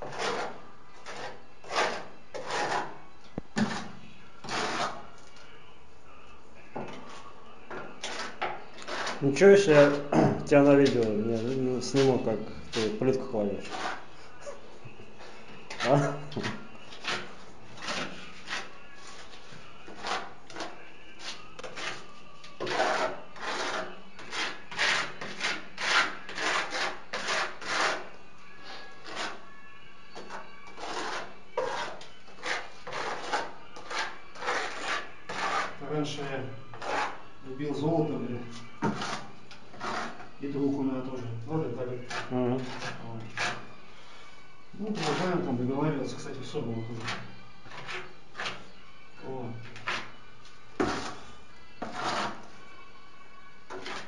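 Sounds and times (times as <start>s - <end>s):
mortar scraping and rubbing strokes: 0.0s - 3.0s, 3.6s - 5.1s, 8.0s - 10.1s, 10.8s - 29.5s, 30.2s - 37.2s, 38.4s - 40.3s, 41.8s - 43.7s, 44.8s - 48.7s, 49.7s - 50.2s, 50.8s - 52.6s, 53.7s - 54.0s.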